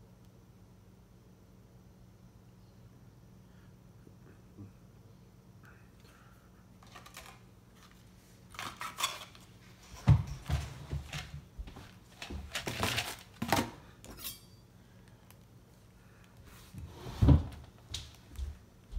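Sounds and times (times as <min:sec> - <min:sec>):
clatter of objects handled: 0:06.8 - 0:14.4.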